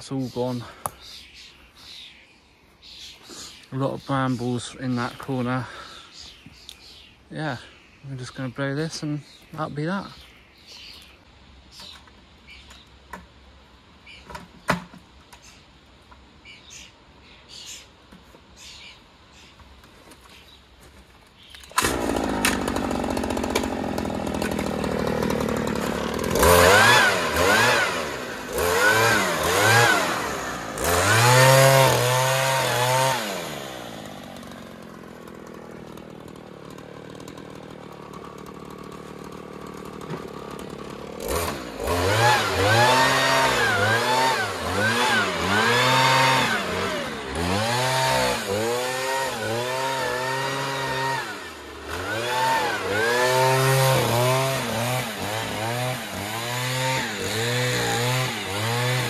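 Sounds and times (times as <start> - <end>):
leaf blower engine revving: 3.2 - 6.3, 21.6 - 59.0.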